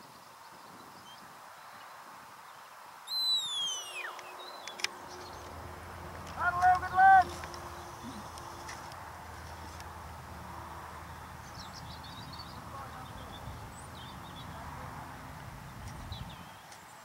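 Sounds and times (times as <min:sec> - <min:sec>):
high bird chirps: 0:03.1 - 0:05.5
steady low rumble: 0:05.2 - 0:16.4.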